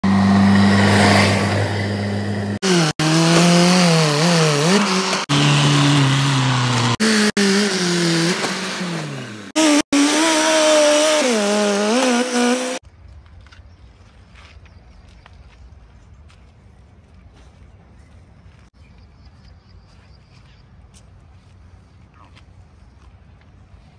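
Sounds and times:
heavy diesel engines revving: 0:00.0 - 0:12.8.

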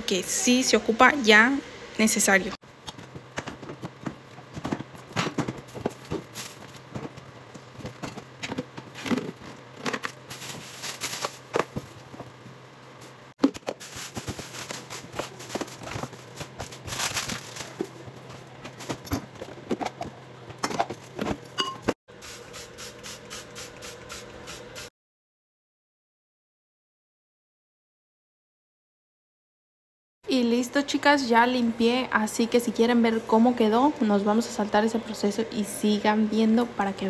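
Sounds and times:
plastic bags rustling: 0:04.0 - 0:12.4, 0:13.0 - 0:19.6.

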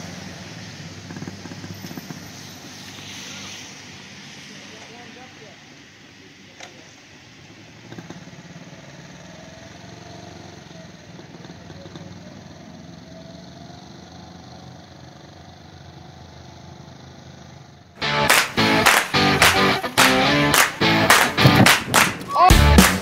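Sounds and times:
distant motorcycle engine running: 0:07.8 - 0:15.9.

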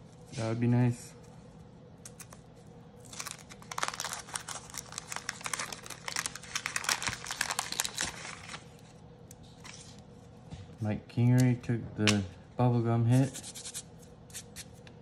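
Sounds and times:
paper wrapper crinkling and tearing: 0:02.1 - 0:09.0.

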